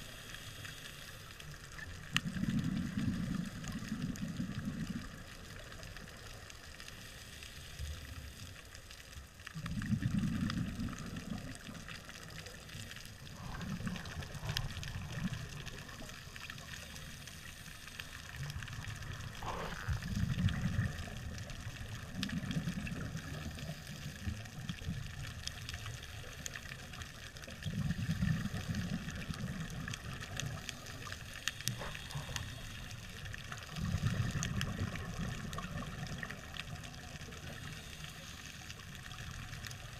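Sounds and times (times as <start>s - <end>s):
faint crackle of fine clicks: 0.0s - 39.9s
scuba diver exhaling bubbles underwater: 2.2s - 5.2s, 9.6s - 12.1s, 13.1s - 17.0s, 18.3s - 24.3s, 27.5s - 37.8s.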